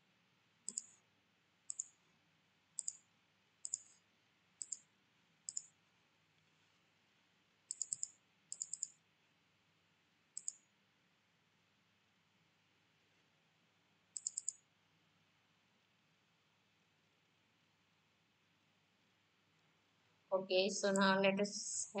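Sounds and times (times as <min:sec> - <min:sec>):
mouse buttons clicking: 0:00.7 - 0:01.0, 0:01.7 - 0:02.0, 0:02.8 - 0:03.0, 0:03.6 - 0:04.0, 0:04.6 - 0:04.8, 0:05.5 - 0:05.7, 0:07.7 - 0:09.0, 0:10.4 - 0:10.6, 0:14.2 - 0:14.6.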